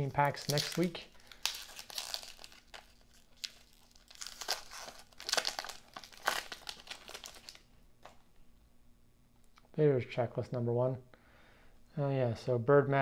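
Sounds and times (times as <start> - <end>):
wax paper wrapper crinkling and tearing: 0.0 - 8.2.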